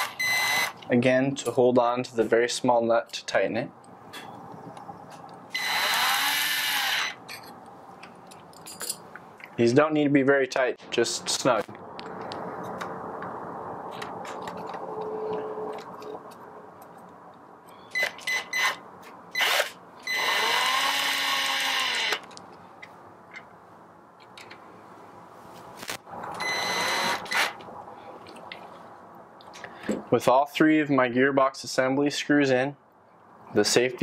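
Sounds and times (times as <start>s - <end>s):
electric screwdriver whining: 5.6s - 7.2s, 19.4s - 22.2s, 26.6s - 27.6s.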